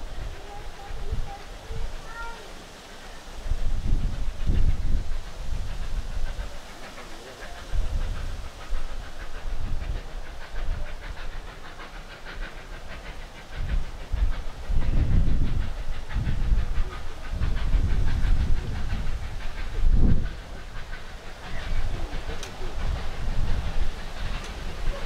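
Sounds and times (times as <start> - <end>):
steam hiss: 0.0 - 25.0.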